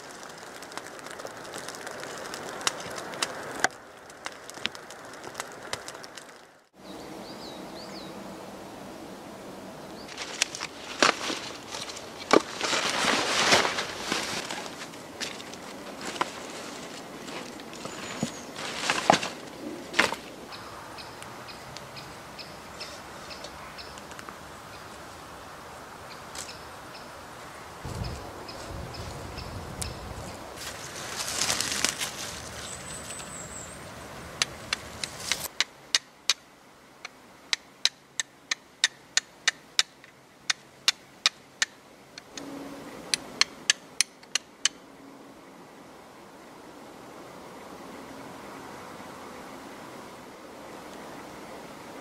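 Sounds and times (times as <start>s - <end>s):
campfire crackling and popping: 0.0s - 6.7s, 34.3s - 36.4s
quiet forest background: 0.0s - 52.0s
bird chirping: 6.8s - 8.2s, 17.4s - 18.6s, 20.5s - 25.0s, 27.9s - 30.4s, 32.5s - 35.3s.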